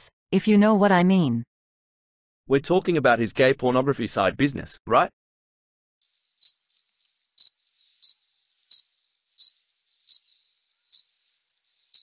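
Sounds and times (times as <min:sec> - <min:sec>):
cricket chirping: 0:06.0 - 0:12.0.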